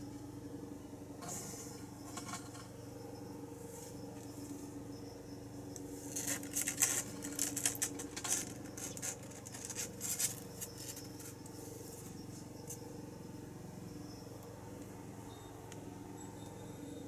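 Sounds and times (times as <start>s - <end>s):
kitten claws scratching cardboard: 6.1s - 11.3s.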